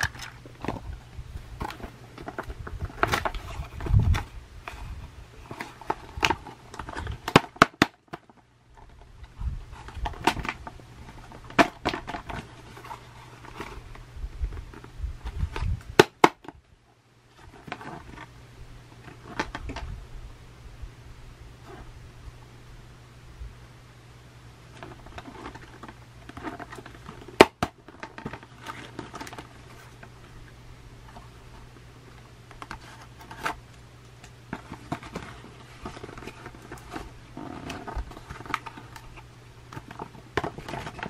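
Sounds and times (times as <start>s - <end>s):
low steady hum: 0.0s - 41.0s.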